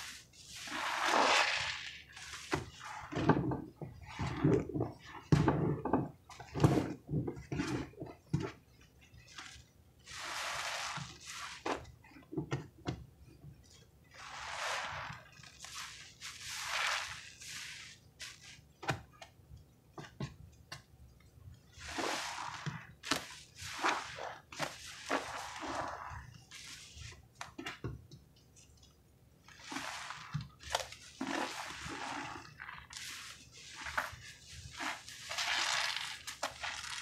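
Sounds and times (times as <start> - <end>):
sponges squelching: 0.0 - 13.0, 13.7 - 19.2, 21.7 - 27.8, 29.4 - 37.0.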